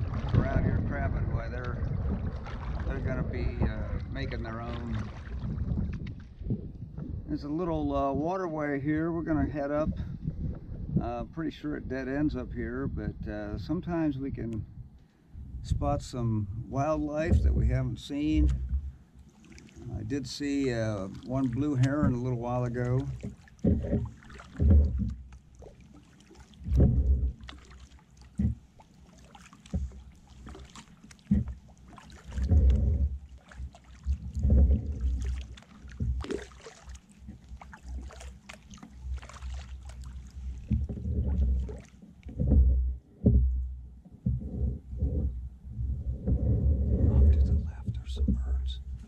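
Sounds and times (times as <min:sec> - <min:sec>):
paddle splashing in water: 0:00.0 - 0:07.3, 0:16.8 - 0:45.4
low thumps and rumbles: 0:00.0 - 0:19.2, 0:19.8 - 0:25.8, 0:26.6 - 0:27.5, 0:28.3 - 0:28.7, 0:31.2 - 0:36.4, 0:39.0 - 0:49.0
water dripping: 0:18.4 - 0:42.3.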